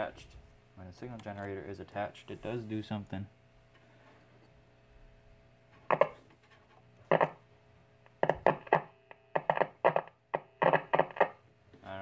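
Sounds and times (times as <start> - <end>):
bursts of tone and crackle: 5.8 - 6.2, 7.0 - 7.4, 8.1 - 11.4.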